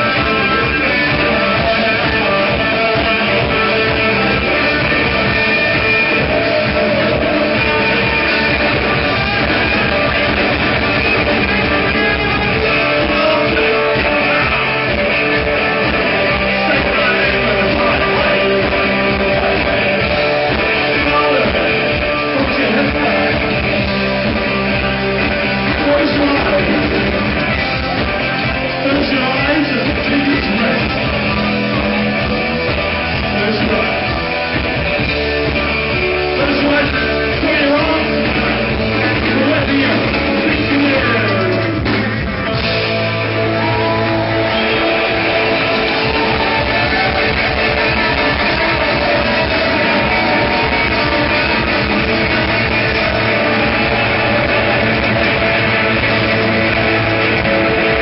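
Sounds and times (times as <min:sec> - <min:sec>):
person singing: 0:00.0 - 0:23.6
electric guitars: 0:00.0 - 0:58.0
live rock band playing: 0:00.0 - 0:58.0.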